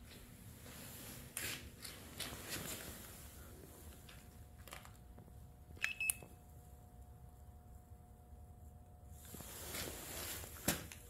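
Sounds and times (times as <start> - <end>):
faint handling rustles: 0.0 - 4.8, 9.2 - 11.0.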